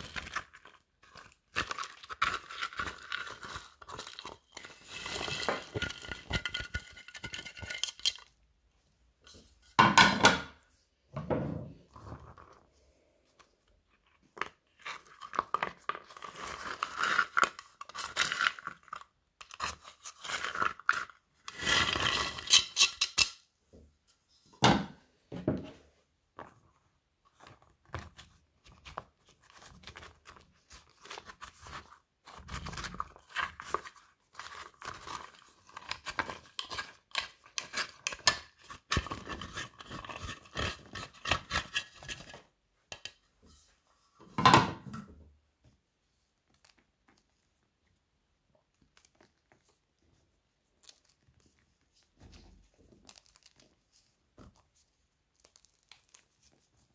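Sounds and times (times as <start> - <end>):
dry slime crackling and crunching: 0.0 - 6.4, 50.6 - 56.9.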